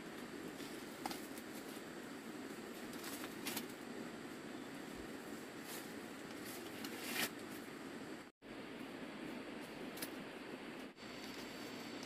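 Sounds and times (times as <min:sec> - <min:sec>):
dry corn husks crinkling: 0:00.0 - 0:03.9, 0:04.6 - 0:07.7.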